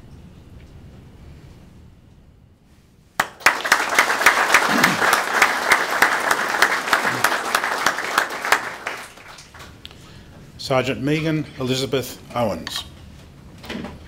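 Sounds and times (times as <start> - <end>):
audience applauding: 3.2 - 9.8.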